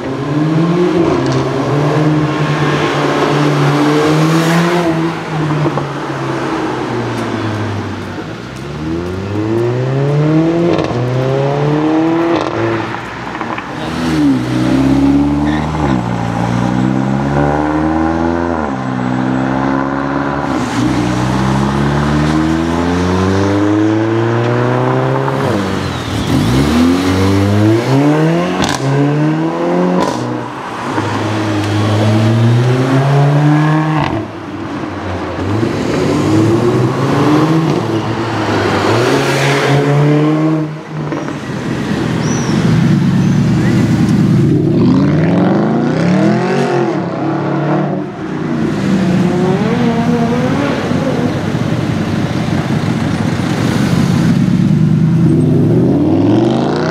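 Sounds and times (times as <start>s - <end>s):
car engine accelerating: 0.0s - 34.3s.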